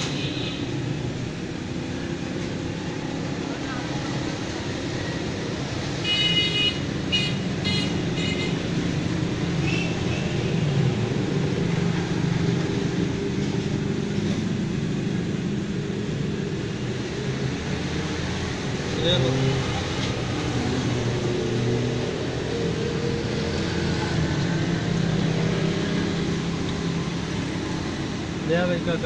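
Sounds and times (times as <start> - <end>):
road traffic noise: 0.0 - 29.0.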